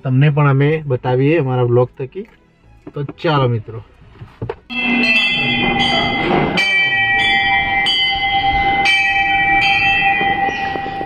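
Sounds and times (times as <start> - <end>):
temple bell ringing: 4.7 - 11.0.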